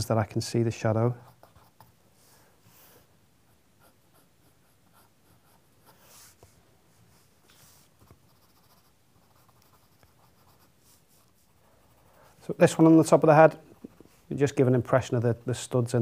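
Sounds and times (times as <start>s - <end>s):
pencil scratching on paper: 3.8s - 6.4s, 7.6s - 14.4s.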